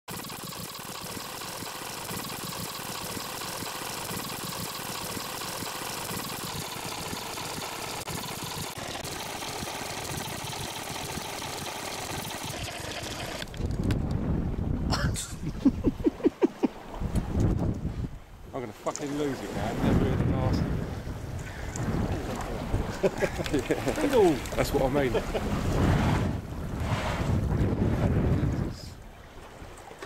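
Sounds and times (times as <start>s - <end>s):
boat engine running: 0.0s - 14.0s, 21.7s - 26.9s.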